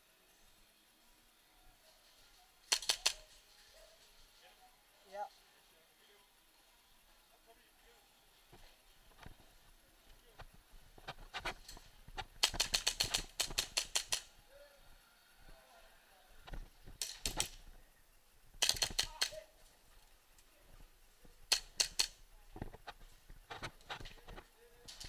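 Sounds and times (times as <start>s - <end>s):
airsoft guns firing: 2.7s - 3.4s, 12.4s - 14.3s, 17.0s - 17.6s, 18.6s - 19.4s, 21.5s - 22.2s.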